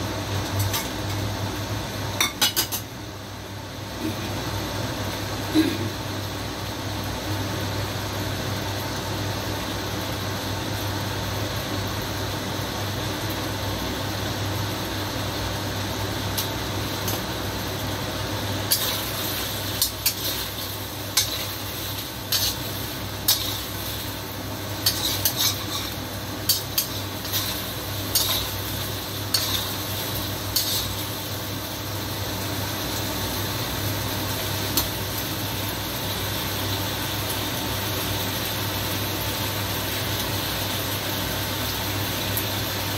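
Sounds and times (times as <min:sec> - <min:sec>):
steady hum: 0:00.0 - 0:39.1
metal ladle scraping wok: 0:21.2 - 0:24.0, 0:24.8 - 0:28.7, 0:29.3 - 0:31.0.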